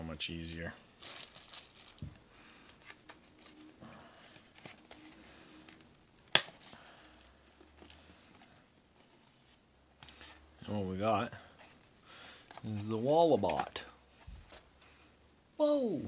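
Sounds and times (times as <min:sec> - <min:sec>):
cardboard box sharp snap: 0:06.3 - 0:06.6.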